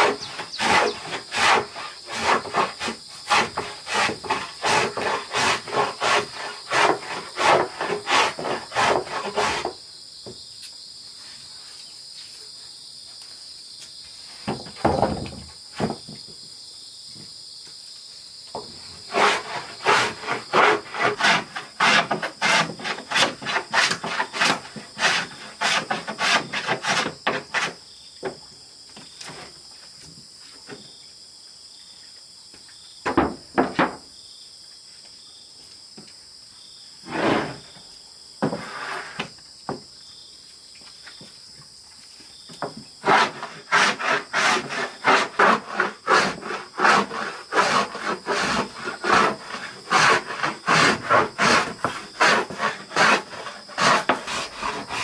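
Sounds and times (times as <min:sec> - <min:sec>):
hand plane shaving wood: 0:00.0 - 0:09.8, 0:19.1 - 0:27.8, 0:37.0 - 0:37.6, 0:43.0 - 0:55.0
insects droning: 0:00.0 - 0:55.0.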